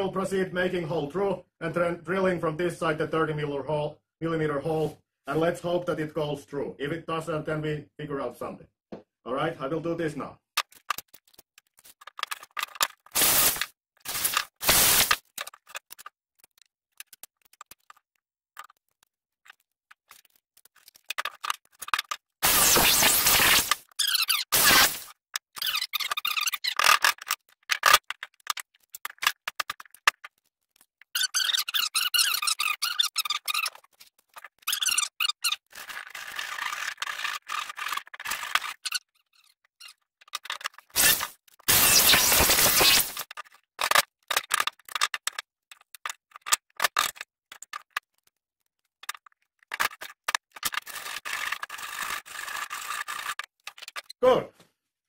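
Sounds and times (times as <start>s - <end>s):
screwdriver scraping wood chips: 10.8s - 18.0s, 18.6s - 30.2s, 31.0s - 45.4s, 49.0s - 54.2s.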